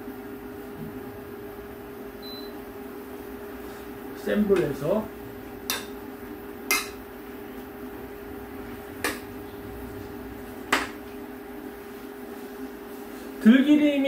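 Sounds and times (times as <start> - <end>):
steady low hum: 0.0 - 14.0
metal spoon knocking on pot: 5.7 - 6.0, 6.7 - 7.0.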